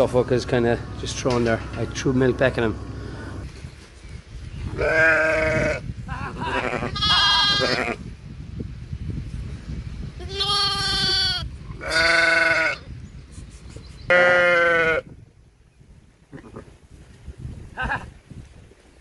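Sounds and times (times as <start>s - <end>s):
sheep bleating: 4.8s - 5.8s, 6.4s - 8.0s, 10.3s - 12.8s, 14.1s - 15.0s.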